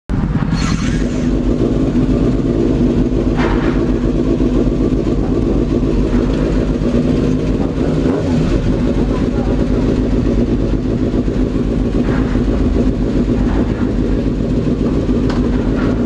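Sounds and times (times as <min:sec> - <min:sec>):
motorcycle engine idling: 0:00.1 - 0:16.0
short rushes of noise: 0:00.4 - 0:01.4.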